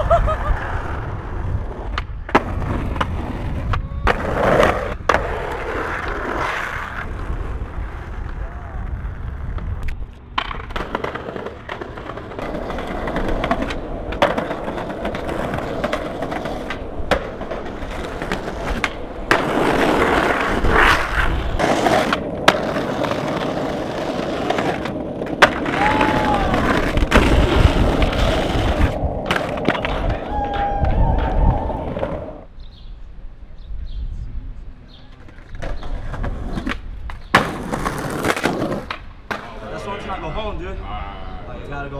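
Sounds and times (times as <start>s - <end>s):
skateboard wheels rolling on asphalt: 0.0s - 33.5s, 34.3s - 41.9s
skateboard clacking on ground: 9.5s - 32.3s, 35.1s - 40.2s.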